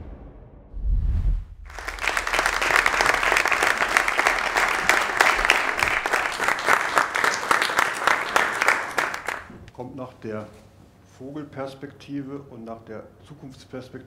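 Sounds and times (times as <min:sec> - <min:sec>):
low boom: 0:00.0 - 0:01.8
audience applauding: 0:01.7 - 0:09.5.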